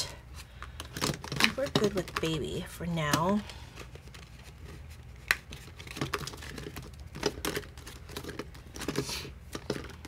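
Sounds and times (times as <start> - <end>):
paper rustling and crinkling: 3.4 - 10.0.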